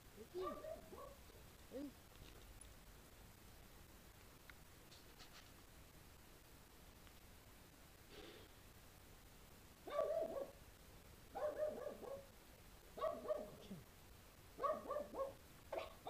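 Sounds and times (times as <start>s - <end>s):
dog barking: 0.4s - 1.2s, 9.8s - 10.6s, 11.3s - 12.3s, 13.0s - 13.7s, 14.6s - 16.0s.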